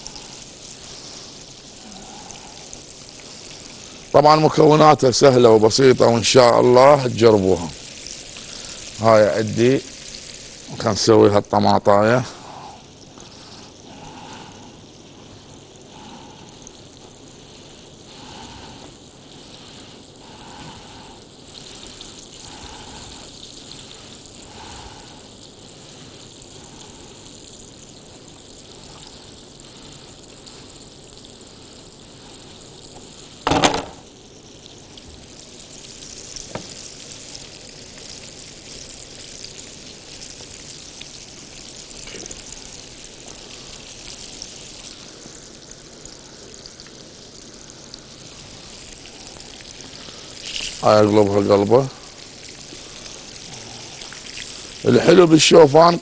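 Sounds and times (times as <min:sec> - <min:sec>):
food sizzling in hot oil: 0:00.0 - 0:56.0.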